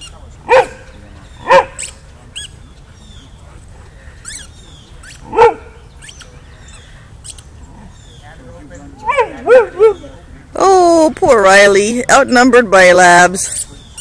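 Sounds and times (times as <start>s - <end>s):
dog barking: 0.4s - 1.9s, 5.2s - 5.8s, 9.1s - 10.0s
squeaky ball squeaking: 4.2s - 5.4s, 6.0s - 7.5s.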